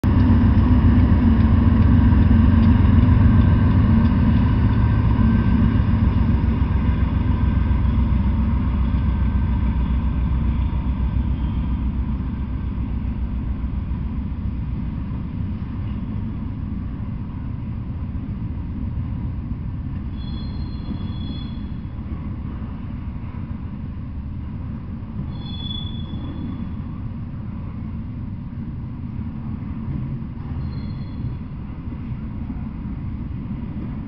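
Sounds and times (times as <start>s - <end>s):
train wheels rumbling on rails: 0.0s - 34.0s
high-pitched wheel squeals: 10.6s - 11.8s, 20.1s - 21.9s, 25.3s - 26.8s, 30.6s - 31.5s.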